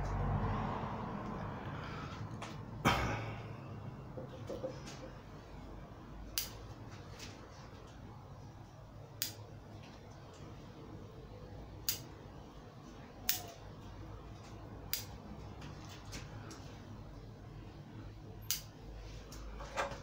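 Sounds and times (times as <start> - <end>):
pruning scissors snipping: 13.2 - 13.6, 14.9 - 15.2.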